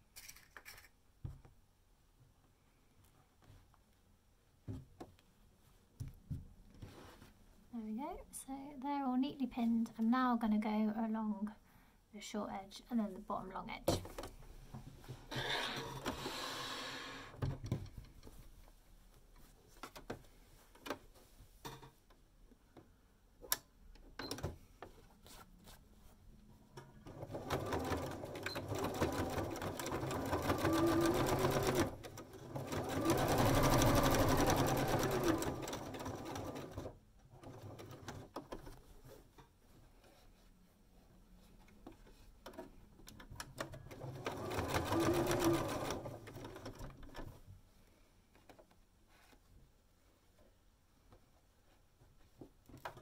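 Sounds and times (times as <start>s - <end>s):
sewing machine stitching: 27.0s - 38.7s, 43.5s - 47.2s.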